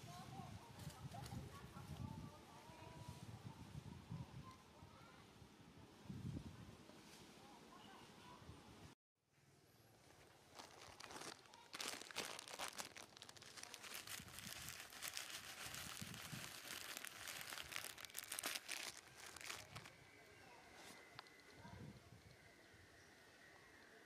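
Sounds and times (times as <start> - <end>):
material crinkling and crackling: 9.9 - 20.0.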